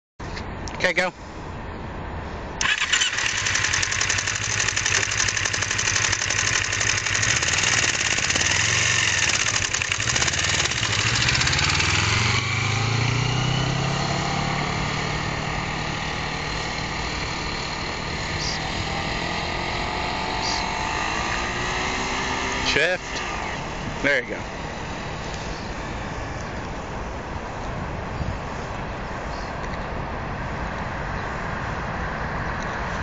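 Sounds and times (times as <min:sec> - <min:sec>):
motorcycle engine pulling away: 0:02.6 - 0:25.7.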